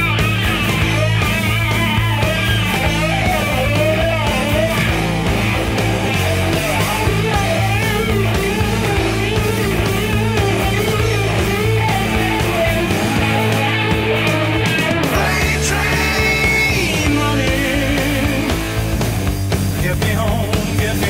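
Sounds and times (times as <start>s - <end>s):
bass notes: 0.0s - 21.0s
bending lead electric guitar: 0.0s - 21.0s
drums: 0.0s - 21.0s.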